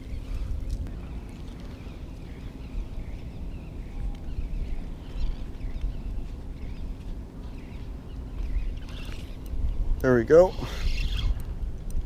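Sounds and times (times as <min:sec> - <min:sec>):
wind noise on microphone: 0:00.0 - 0:12.0
high wavering chirps: 0:10.7 - 0:11.4.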